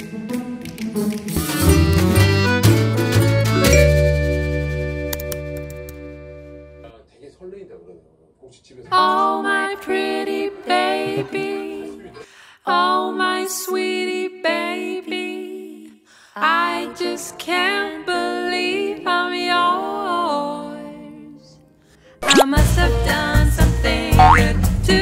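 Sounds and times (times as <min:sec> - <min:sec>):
slow background music: 0:00.0 - 0:06.9.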